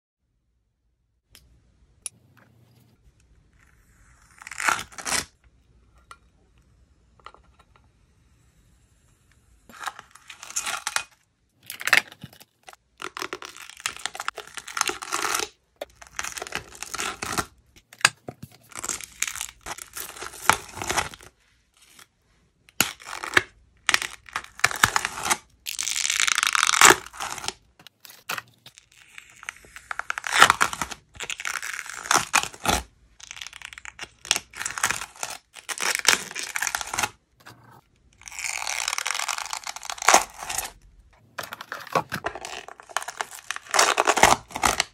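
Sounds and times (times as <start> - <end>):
slime film peeling crackly tearing: 23.9 - 27.6, 38.2 - 40.8, 42.3 - 44.9.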